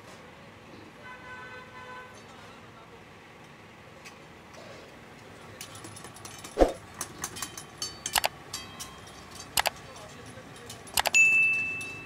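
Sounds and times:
kitchen background noise: 3.4s - 12.0s
metal utensils clanking on woks: 5.5s - 12.0s.

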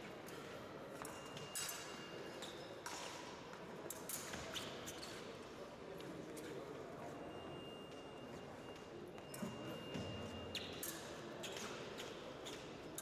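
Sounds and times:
sports hall hum: 0.0s - 13.0s
fencing footwork taps and clicks: 0.2s - 5.2s, 9.3s - 13.0s.

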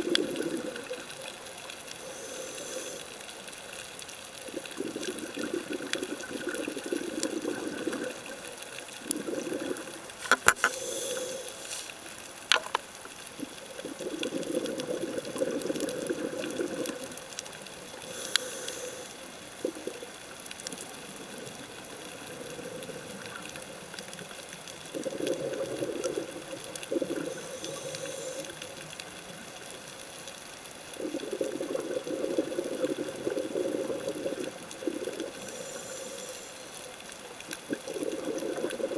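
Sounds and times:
underwater exhalation bubbling: 0.0s - 1.3s, 4.4s - 11.5s, 13.4s - 23.9s, 24.8s - 29.7s, 30.8s - 36.3s, 37.4s - 38.9s
regulator inhalation hiss: 2.0s - 3.2s, 10.5s - 12.0s, 18.0s - 19.3s, 27.3s - 28.6s, 35.4s - 36.9s.

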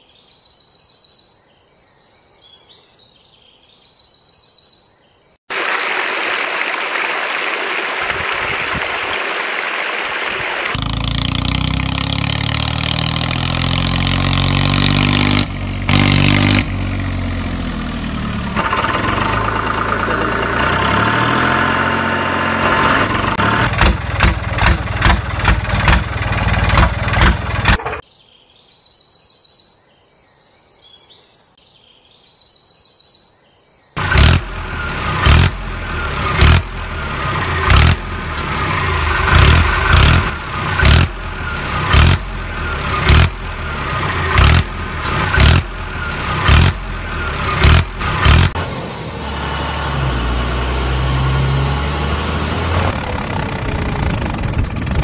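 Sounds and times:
tractor engine chugging: 17.6s - 28.0s, 34.0s - 48.6s, 52.9s - 55.0s.

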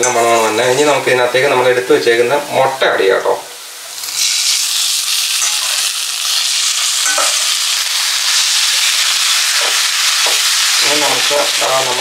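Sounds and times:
masala sizzling in a pan: 0.0s - 12.0s.

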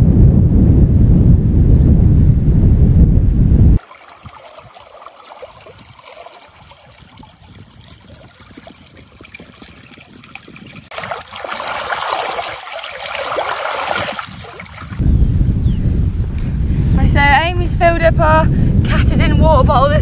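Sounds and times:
stream trickling over stones: 3.8s - 15.0s
water rushing into plastic bottle: 3.8s - 15.0s.

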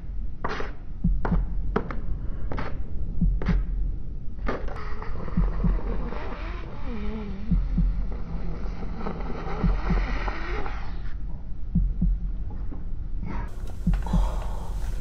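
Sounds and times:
low heartbeat-like thumps: 0.0s - 4.6s, 5.2s - 6.2s, 7.4s - 15.0s
hiss: 13.5s - 15.0s.

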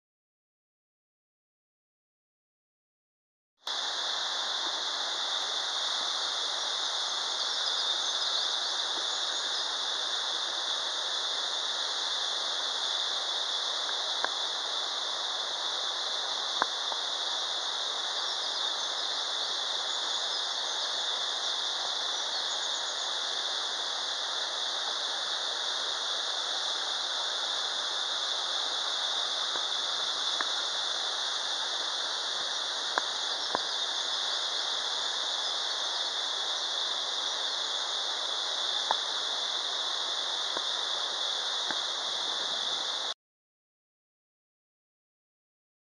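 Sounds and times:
waterfall rushing: 3.7s - 43.2s
faint clicks: 16.6s - 17.0s, 30.3s - 30.6s, 32.9s - 33.7s, 38.8s - 39.1s.

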